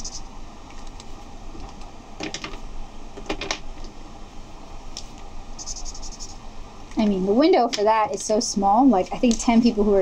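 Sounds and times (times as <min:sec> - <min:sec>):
marker scratching on paper: 0:05.6 - 0:06.4.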